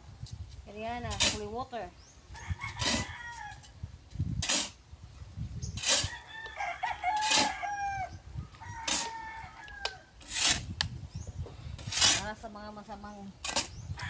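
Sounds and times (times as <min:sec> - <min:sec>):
rooster crowing: 0:02.4 - 0:03.7, 0:06.0 - 0:10.1
short raspy strokes: 0:10.2 - 0:10.8.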